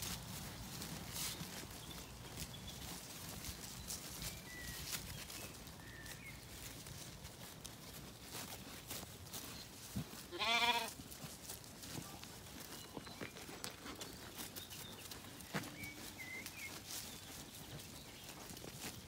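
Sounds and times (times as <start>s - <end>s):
hooves clicking on tarmac: 0.0s - 19.0s
sheep bleating: 10.3s - 11.0s.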